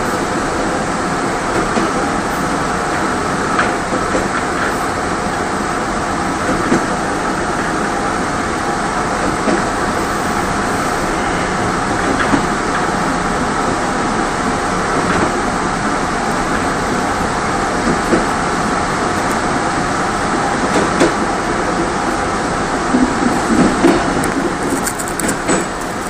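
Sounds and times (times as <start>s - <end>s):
train rumble from inside: 0.0s - 26.0s
train wheels knocking: 22.9s - 26.0s.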